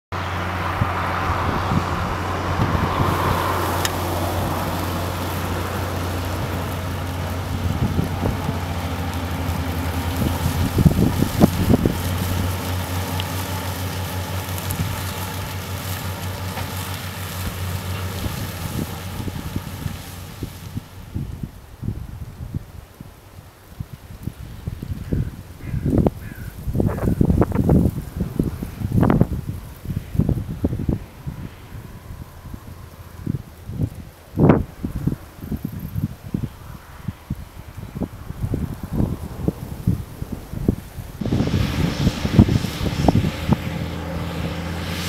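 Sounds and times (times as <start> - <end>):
tractor engine running: 0.1 - 24.9, 37.4 - 45.0
spreader beaters flinging grass: 0.5 - 22.2, 22.9 - 45.0.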